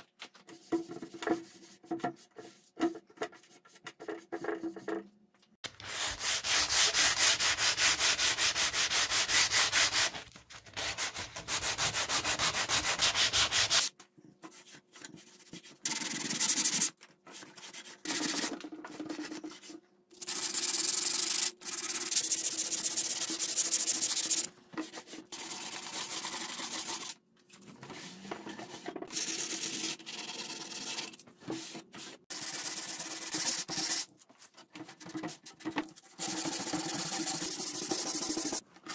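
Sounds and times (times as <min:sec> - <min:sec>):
sandpaper rubbing on wood: 0:05.8 - 0:10.2, 0:10.8 - 0:13.9.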